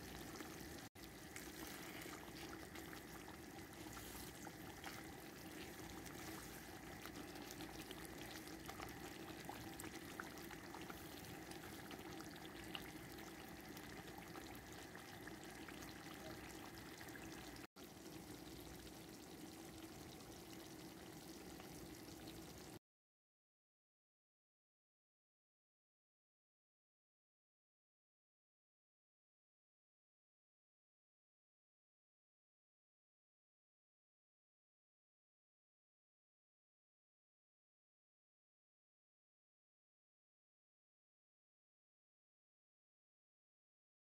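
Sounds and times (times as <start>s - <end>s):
sauce bubbling in a pan: 0.0s - 22.8s.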